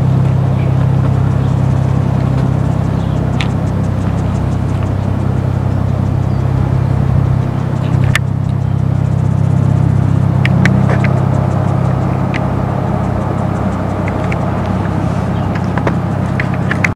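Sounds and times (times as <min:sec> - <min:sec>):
engine low drone: 0:00.0 - 0:16.9
sharp clicks: 0:02.2 - 0:09.0, 0:10.4 - 0:16.9.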